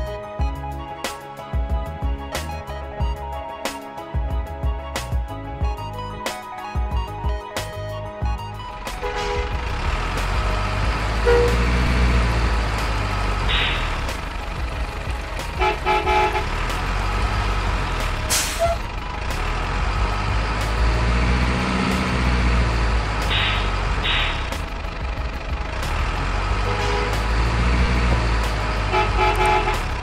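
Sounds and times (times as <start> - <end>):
diesel truck engine rumble: 4.1 - 30.0
truck horn toots: 8.9 - 9.9, 11.0 - 12.2, 15.5 - 16.7, 18.3 - 18.9, 26.5 - 27.9, 28.8 - 30.0
air-brake hiss: 18.3 - 18.8.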